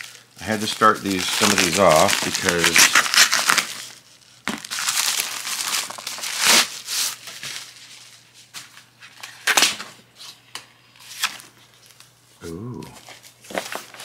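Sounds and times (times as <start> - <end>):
packaging crinkling and rustling: 0.0 - 12.1, 13.0 - 14.0.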